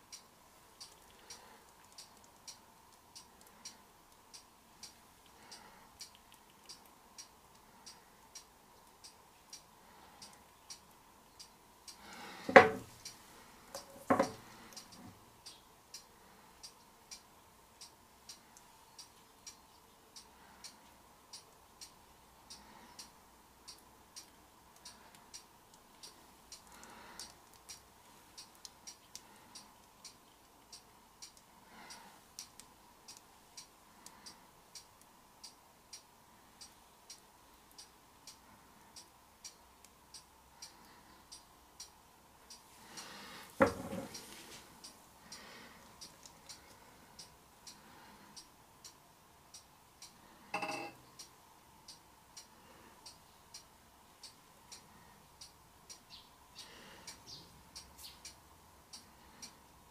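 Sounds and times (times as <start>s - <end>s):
faint regular ticking: 0.0s - 59.9s
wooden board knocking: 12.5s - 12.9s, 13.8s - 14.4s, 43.6s - 44.1s.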